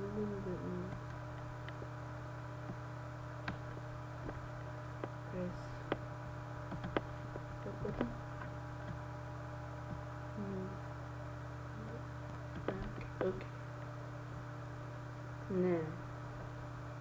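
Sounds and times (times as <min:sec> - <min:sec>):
electrical mains hum: 0:00.0 - 0:17.0
mouse and keyboard clicks: 0:06.7 - 0:07.1.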